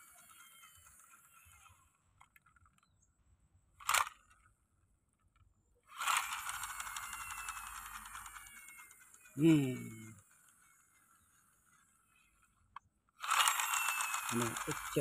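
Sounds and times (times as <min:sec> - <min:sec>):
toy scraping over dirt: 0:00.0 - 0:03.0, 0:05.9 - 0:12.6, 0:13.2 - 0:15.0
toy wheels and gears whirring: 0:00.0 - 0:03.0, 0:03.8 - 0:04.5, 0:05.9 - 0:15.0.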